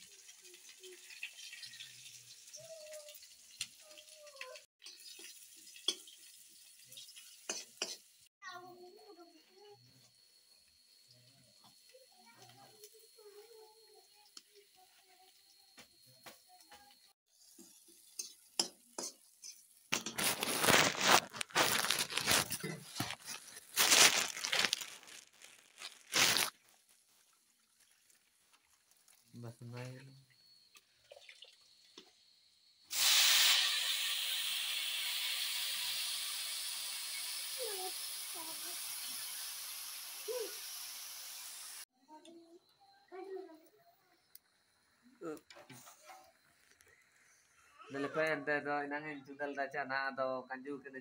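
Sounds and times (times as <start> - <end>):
mushrooms sizzling in oil: 0.0 - 8.3, 9.0 - 30.2, 32.9 - 41.9
plastic bag crinkling: 19.9 - 27.1.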